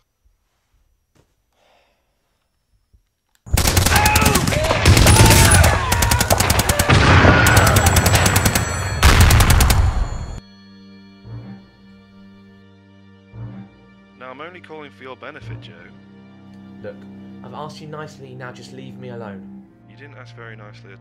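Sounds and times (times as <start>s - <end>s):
rapid automatic gunfire: 3.5s - 10.4s.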